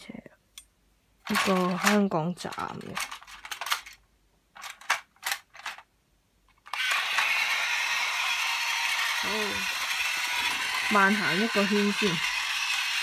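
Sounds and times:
plastic toy train clicks and knocks: 1.2s - 5.9s, 8.7s - 13.0s
toy train motor whirring: 1.3s - 3.9s, 6.6s - 13.0s.

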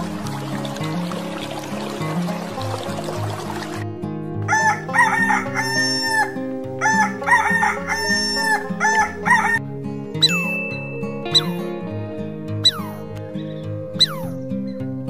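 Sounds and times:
background music: 0.0s - 15.0s
rooster crowing: 4.5s - 9.6s.

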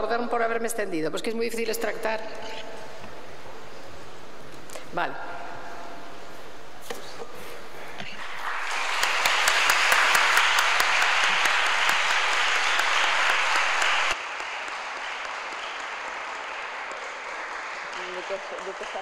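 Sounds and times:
audience applauding: 8.2s - 19.0s.

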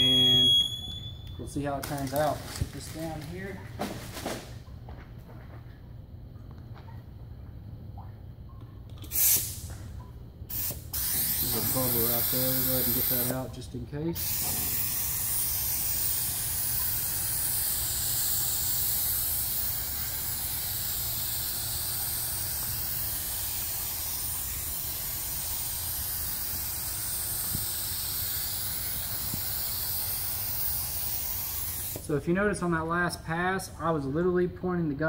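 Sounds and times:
spray gun hissing: 10.5s - 13.5s, 14.2s - 32.2s.

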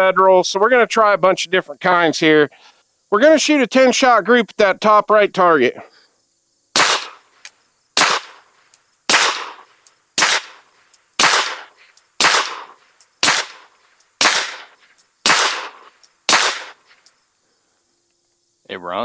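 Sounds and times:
suppressed pistol shots: 6.8s - 7.2s, 8.0s - 8.4s, 9.1s - 10.6s, 11.2s - 16.8s.

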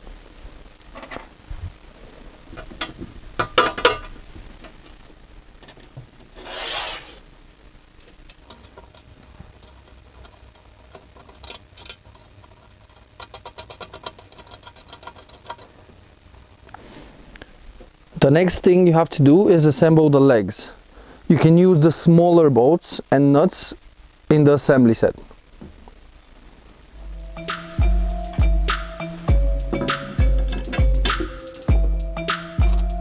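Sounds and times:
short scraping rub: 6.4s - 7.2s.

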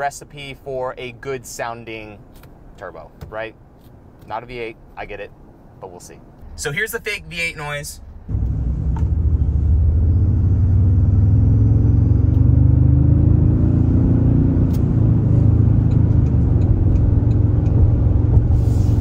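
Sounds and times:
truck engine accelerating: 8.2s - 19.0s.

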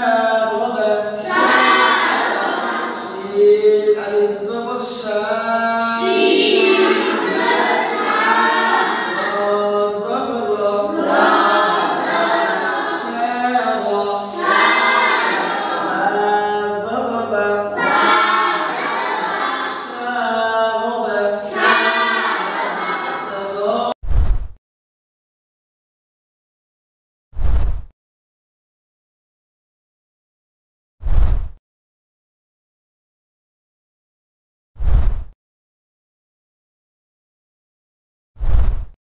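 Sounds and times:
boys chanting in unison: 0.0s - 24.0s.

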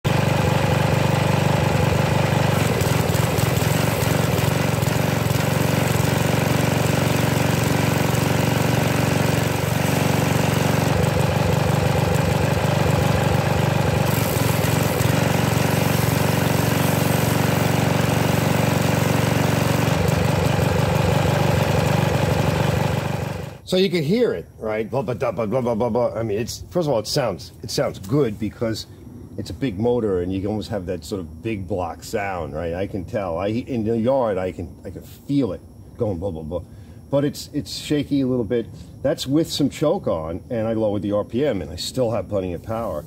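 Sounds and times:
pressure washer engine running: 0.1s - 23.6s.

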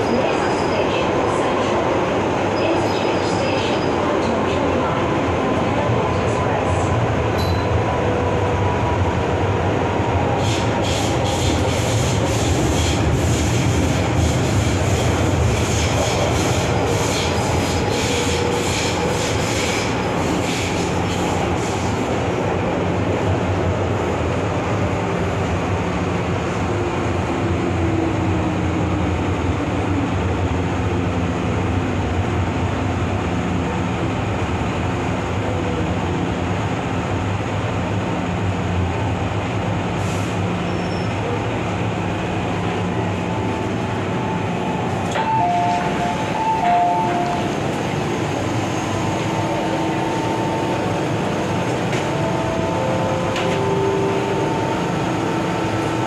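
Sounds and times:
train wheels rumbling: 0.0s - 56.0s.

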